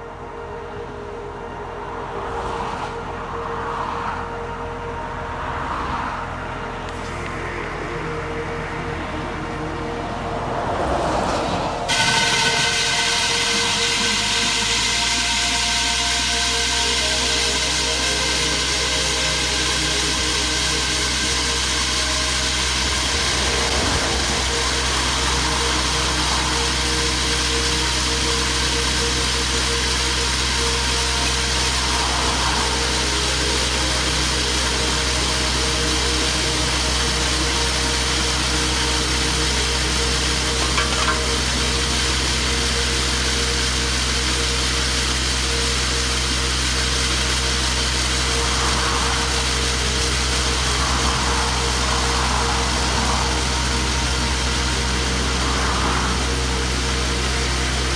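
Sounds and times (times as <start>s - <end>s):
passing vehicle: 0.0s - 42.7s, 47.0s - 57.9s
diesel engine and hydraulic drive: 0.0s - 57.9s
core drill cutting asphalt: 11.9s - 57.9s.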